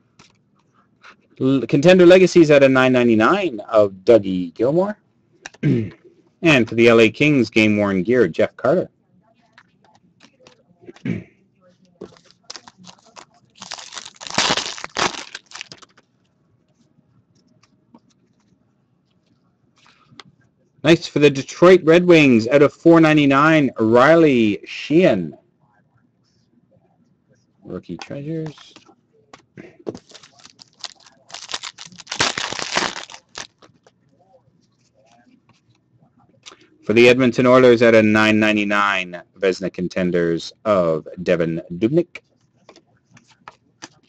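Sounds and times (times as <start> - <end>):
wrapper crinkling and tearing: 12.0 - 16.0, 30.0 - 33.8.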